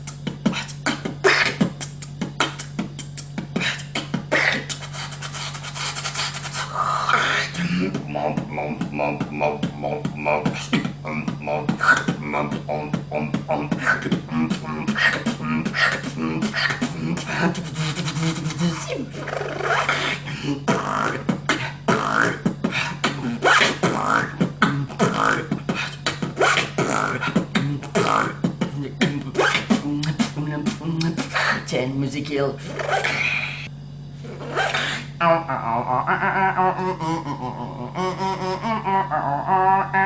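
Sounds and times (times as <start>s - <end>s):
man beatboxing: 0.0s - 31.8s
steady low hum: 0.0s - 40.0s.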